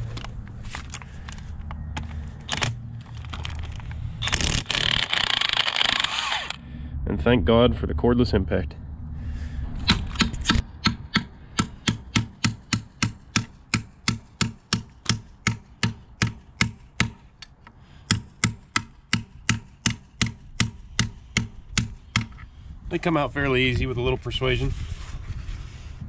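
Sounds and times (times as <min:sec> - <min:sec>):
sledgehammer striking steel: 0:09.8 - 0:17.3, 0:18.0 - 0:22.4.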